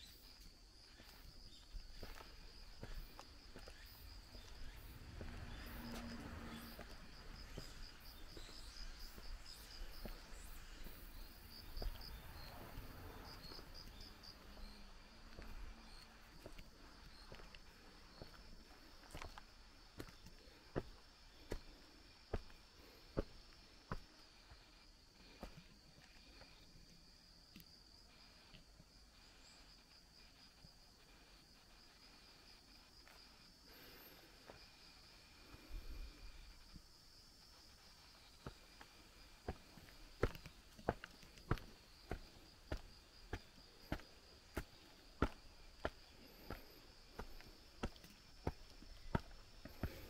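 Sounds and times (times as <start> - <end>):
footsteps on a path: 0.0 - 26.5, 37.6 - 50.0
insects chirping: 0.0 - 50.0.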